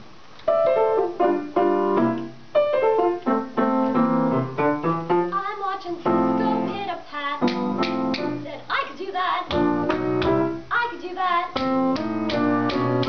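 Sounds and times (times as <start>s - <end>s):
grand piano chords: 0.0s - 13.0s
person singing with vibrato: 5.3s - 13.0s.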